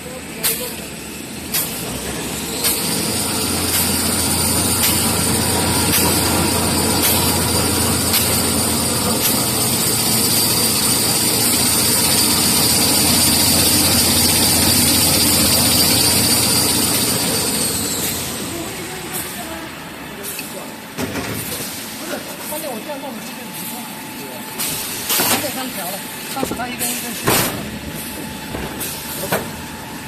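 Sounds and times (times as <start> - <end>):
high machine whine: 0.0 - 21.0
machine hum: 2.0 - 20.9.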